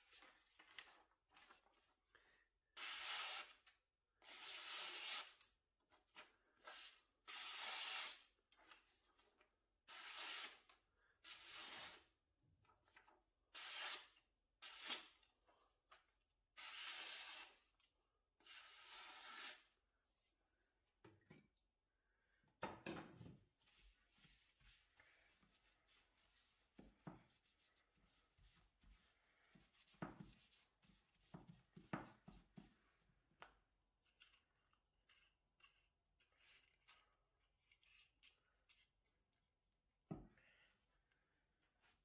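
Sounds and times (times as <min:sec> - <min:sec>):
knife slicing paper: 0:02.8 - 0:03.6, 0:04.2 - 0:05.4, 0:06.6 - 0:08.3, 0:09.9 - 0:12.1, 0:13.5 - 0:15.2, 0:16.6 - 0:17.7, 0:18.4 - 0:19.7.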